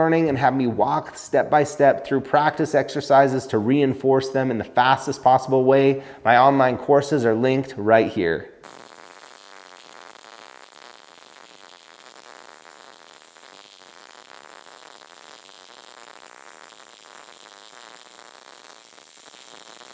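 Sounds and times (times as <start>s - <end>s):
welding arc crackling: 8.6s - 19.9s.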